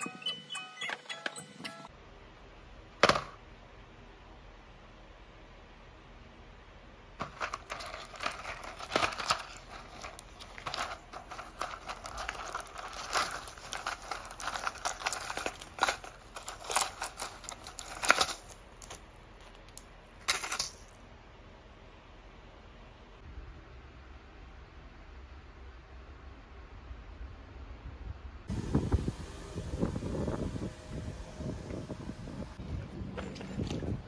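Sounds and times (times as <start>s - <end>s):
blister sheets crinkling and clicking: 7.2s - 21.0s.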